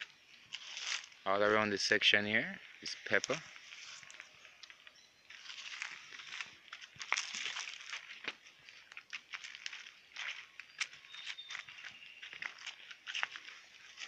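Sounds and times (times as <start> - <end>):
leaves and corn stalks rustling: 0.0 - 14.0
footsteps: 2.8 - 14.0
sharp crunches: 5.3 - 14.0.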